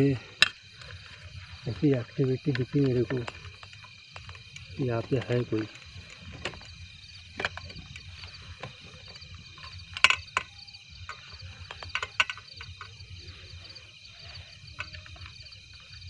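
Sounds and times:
tripod clicks and knocks: 2.4s - 13.0s, 14.7s - 16.0s.

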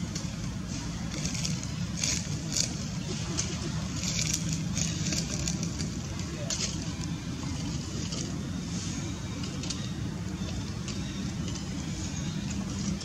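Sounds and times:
faint dry rustles: 0.0s - 13.0s
low outdoor rumble: 0.0s - 13.0s.

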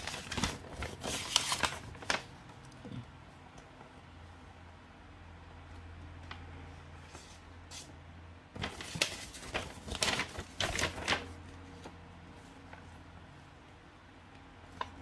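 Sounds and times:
paper rustling and crackling: 0.0s - 2.6s, 8.6s - 13.0s, 14.7s - 15.0s.

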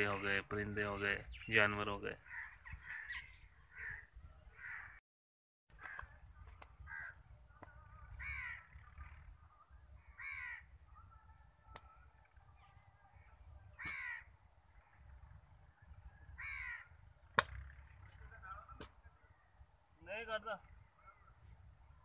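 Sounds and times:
crow cawing: 2.2s - 5.0s, 5.8s - 6.1s, 6.8s - 7.2s, 7.8s - 9.2s, 10.0s - 10.7s, 13.7s - 15.2s, 16.4s - 17.0s.

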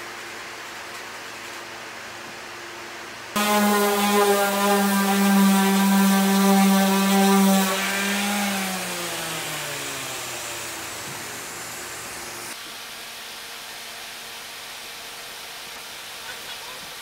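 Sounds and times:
electric sander running: 3.4s - 12.6s
motor winding down: 3.4s - 12.6s.

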